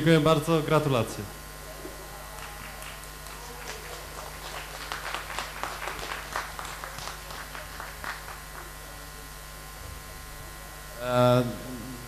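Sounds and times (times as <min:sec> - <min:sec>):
electrical hum: 0:00.0 - 0:12.0
people clapping: 0:01.8 - 0:09.1.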